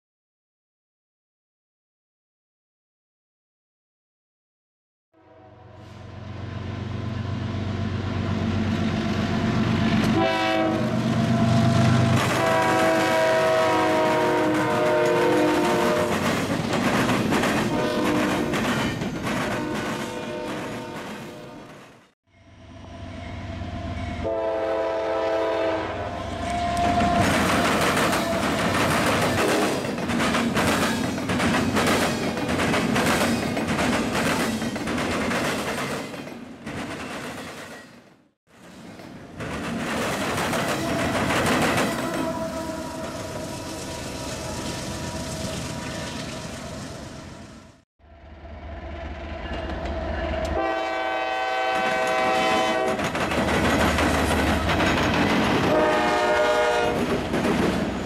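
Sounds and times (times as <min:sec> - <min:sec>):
locomotive horn blast: 0:05.2 - 0:06.2, 0:10.0 - 0:16.2, 0:17.6 - 0:18.6, 0:19.5 - 0:21.7, 0:22.8 - 0:28.9, 0:40.8 - 0:47.8, 0:50.0 - 0:53.0, 0:55.6 - 0:57.0
diesel locomotive engine rumble: 0:05.9 - 0:21.5, 0:39.1 - 0:58.0
train wheels clattering over rails: 0:14.5 - 0:21.9, 0:26.9 - 0:38.0, 0:38.6 - 0:42.3, 0:51.8 - 0:55.8, 0:56.9 - 0:58.0.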